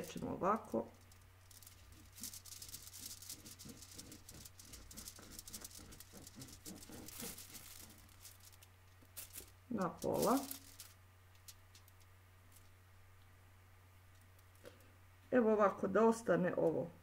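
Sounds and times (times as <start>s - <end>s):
knife scraping orange peel: 1.8s - 8.6s.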